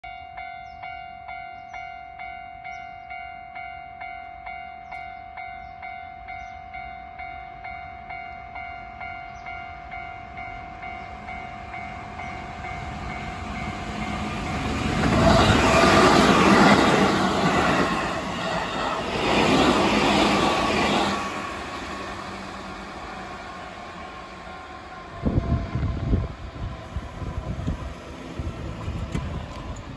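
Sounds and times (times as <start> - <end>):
level-crossing warning bell ringing: 0.0 - 25.8
train wheels on rails: 8.4 - 29.9.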